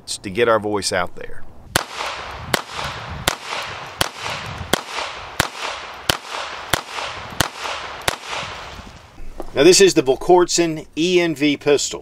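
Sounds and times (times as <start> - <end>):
pistol shots with echo: 1.7 - 9.0.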